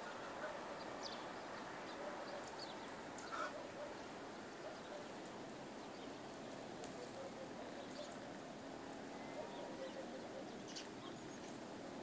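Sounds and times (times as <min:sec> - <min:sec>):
low bird call: 0:00.0 - 0:04.0, 0:09.1 - 0:11.6
outdoor hiss: 0:00.0 - 0:07.2, 0:08.0 - 0:09.4
small birds chirping: 0:00.0 - 0:12.0.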